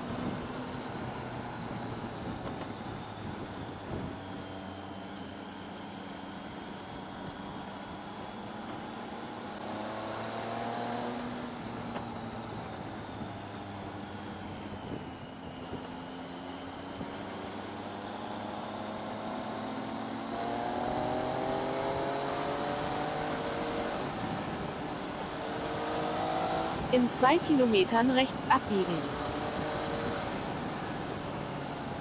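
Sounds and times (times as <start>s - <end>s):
wind noise: 0.0s - 4.6s.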